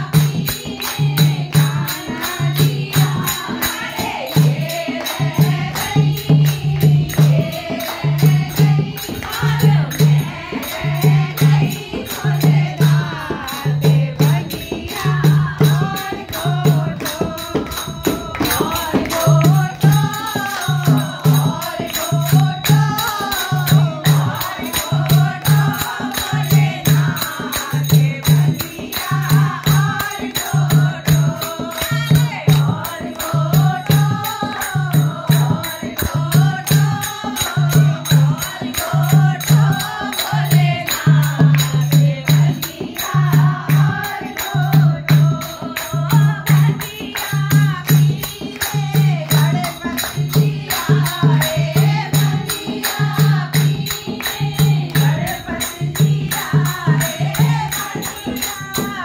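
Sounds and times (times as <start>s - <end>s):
jingling percussion: 0.0s - 59.0s
women singing in chorus: 0.0s - 59.0s
hand clapping: 14.4s - 59.0s.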